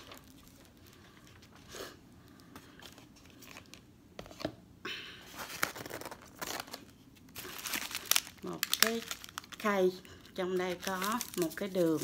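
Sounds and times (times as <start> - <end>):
packaging rustling and crinkling: 0.0 - 1.7, 5.4 - 12.0.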